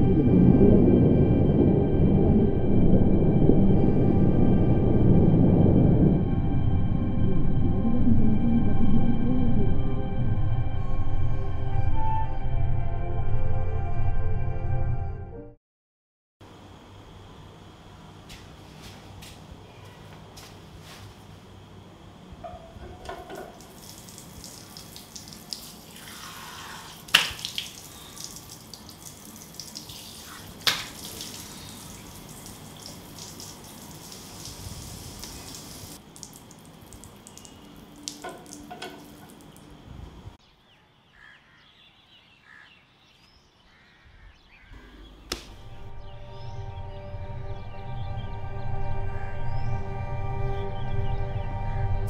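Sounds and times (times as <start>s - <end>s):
soft music: 0.0s - 15.6s, 45.4s - 52.0s
tap water running into sink: 22.8s - 39.7s
water splashes: 23.1s - 39.7s.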